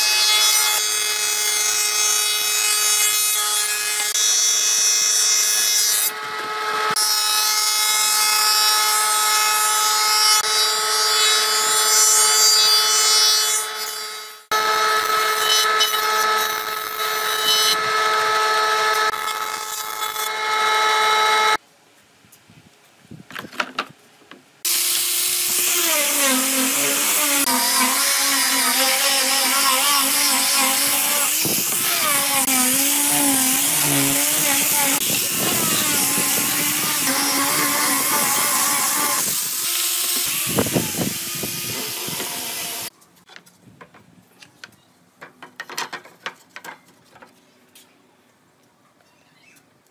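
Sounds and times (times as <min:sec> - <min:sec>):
angle grinder sanding wood: 0:24.7 - 0:42.9
planer whining: 0:24.7 - 0:42.9.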